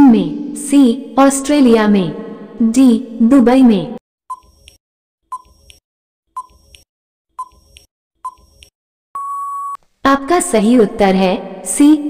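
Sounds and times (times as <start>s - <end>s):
short beeps: 9.2s - 9.8s.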